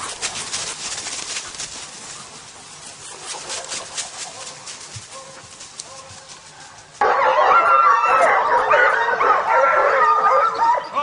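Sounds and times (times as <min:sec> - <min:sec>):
hounds baying: 0:03.1 - 0:11.0.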